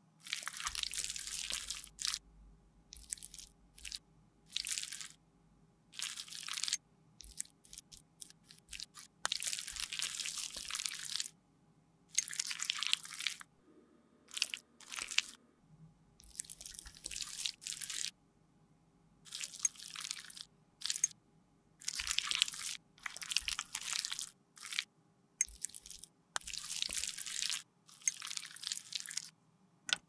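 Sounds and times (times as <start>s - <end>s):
sticky makeup scraping and squishing: 0.2s - 2.2s, 2.9s - 5.2s, 6.0s - 11.3s, 12.1s - 13.5s, 14.3s - 15.4s, 16.2s - 18.1s, 19.3s - 21.1s, 21.8s - 29.4s.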